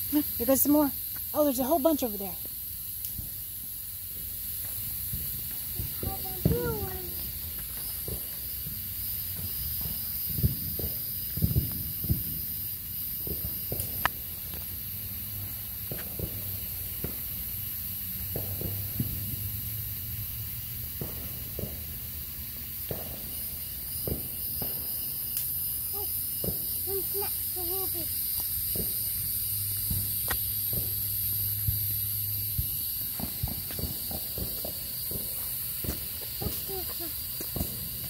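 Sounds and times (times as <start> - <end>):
night insects chirping: 0.0 - 38.0
footsteps: 4.1 - 12.4, 15.8 - 17.2, 26.0 - 31.8, 32.5 - 38.0.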